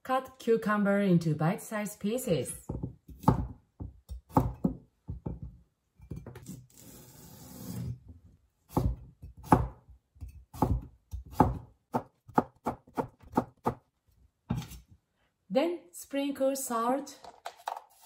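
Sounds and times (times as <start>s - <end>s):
knife chopping on plastic board: 2.7s - 5.6s, 8.7s - 9.8s, 10.5s - 13.8s.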